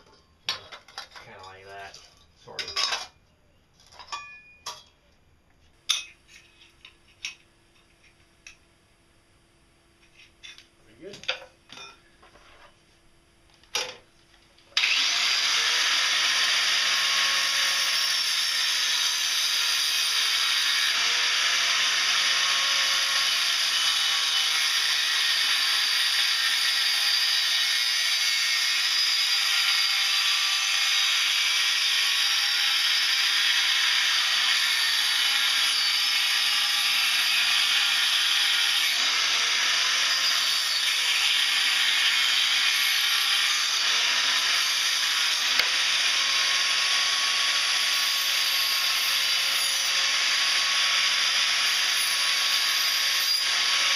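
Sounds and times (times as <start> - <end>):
angle grinder grinding metal: 14.8 - 53.9.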